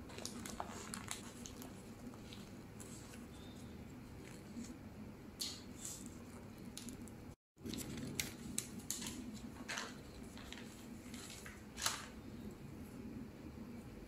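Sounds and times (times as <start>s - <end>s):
plastic cling wrap crinkling: 0.0s - 2.5s, 6.6s - 12.2s
steady low hum: 0.0s - 14.0s.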